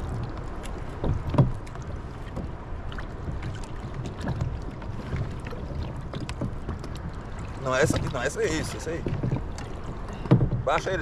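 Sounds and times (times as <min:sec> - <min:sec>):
water slapping against kayak hulls: 0:00.0 - 0:11.0
wind on microphone: 0:00.0 - 0:11.0
small knocks: 0:01.0 - 0:02.5, 0:09.0 - 0:10.9.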